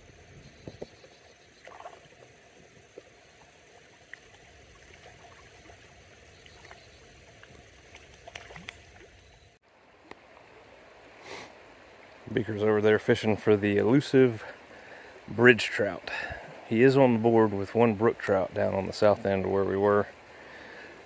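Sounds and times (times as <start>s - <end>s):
mountain stream rushing: 9.7s - 21.0s.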